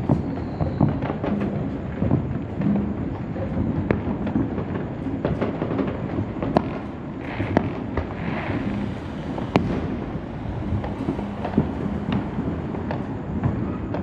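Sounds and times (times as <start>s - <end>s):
fireworks booming and popping: 0.0s - 14.0s
sharp firework bangs: 0.0s - 14.0s.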